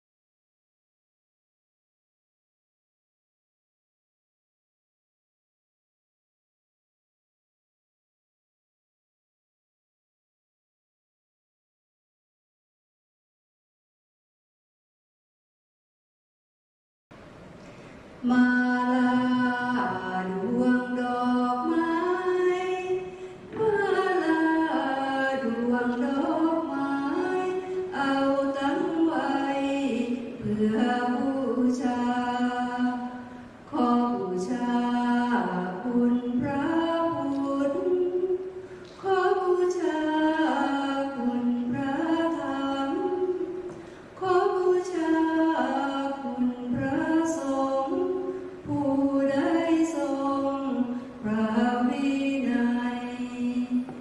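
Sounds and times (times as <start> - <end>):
person singing unaccompanied: 18.2 - 54.0.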